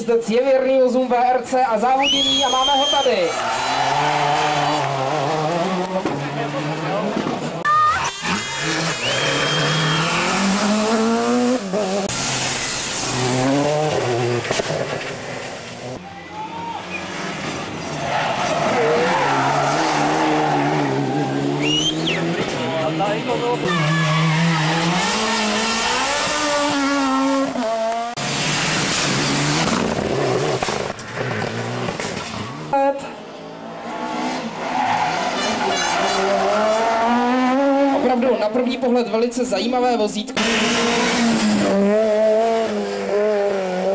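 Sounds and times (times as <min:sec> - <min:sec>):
rally car engines revving: 0:02.0 - 0:43.9
loud rushing noise: 0:08.0 - 0:15.7
tyre and road noise hiss: 0:12.0 - 0:13.9.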